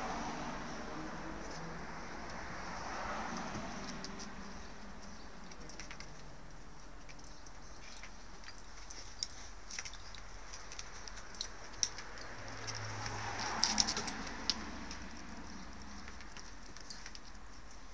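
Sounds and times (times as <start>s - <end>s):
collar tags jingling: 3.8s - 17.9s.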